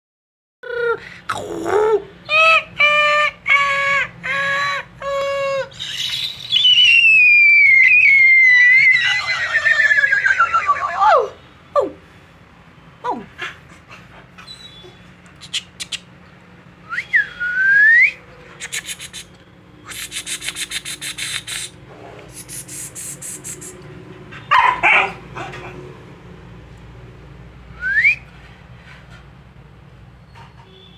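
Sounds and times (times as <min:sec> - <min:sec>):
kissing clicks: 0:15.2 - 0:16.1, 0:18.6 - 0:23.9
person whistling: 0:16.9 - 0:18.2, 0:27.8 - 0:28.3.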